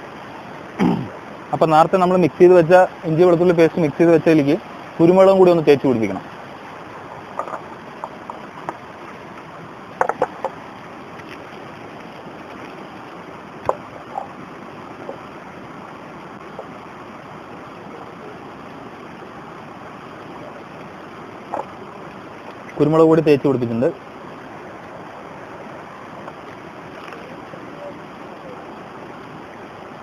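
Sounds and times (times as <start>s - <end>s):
stream rushing over rocks: 0.0s - 30.0s
light clicks and knocks: 7.2s - 8.8s, 10.0s - 10.6s.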